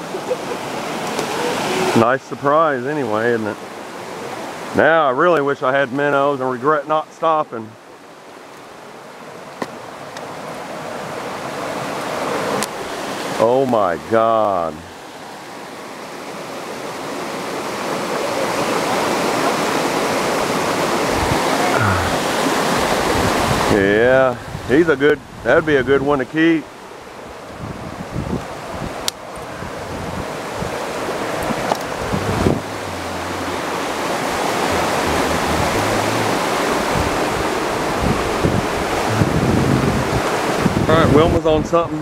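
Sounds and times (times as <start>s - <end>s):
water rushing over rocks: 0.0s - 42.0s
low rumbling buffets: 31.2s - 41.7s
loud rushing noise: 32.0s - 40.8s.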